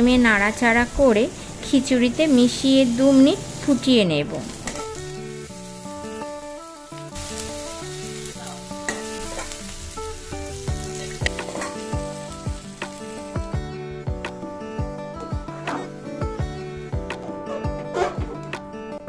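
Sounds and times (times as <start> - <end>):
food sizzling in a pot: 0.0 - 18.5
background music with melody: 0.0 - 19.0.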